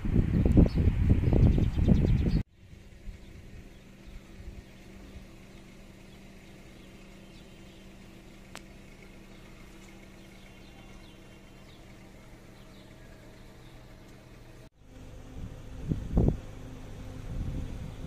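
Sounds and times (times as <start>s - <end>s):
steady low hum: 0.0s - 18.0s
faint bird chirps: 3.1s - 14.7s.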